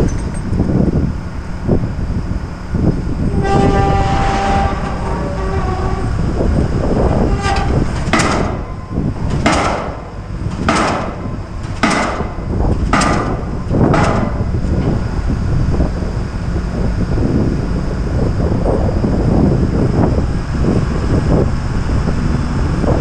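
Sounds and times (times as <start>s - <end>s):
low rumble: 0.0s - 23.0s
pile driver hammering: 8.0s - 8.7s, 9.3s - 14.5s.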